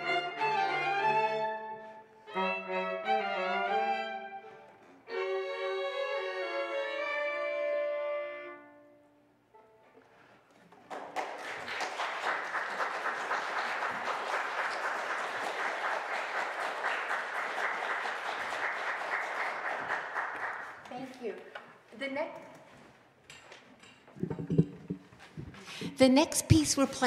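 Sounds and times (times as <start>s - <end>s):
audience applause: 10.7s - 20.9s.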